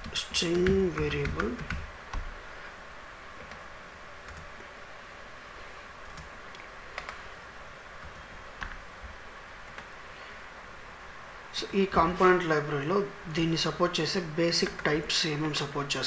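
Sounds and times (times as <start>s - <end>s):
computer keyboard keystrokes: 0.0s - 2.3s, 7.0s - 7.2s
faint room hiss: 0.0s - 16.0s.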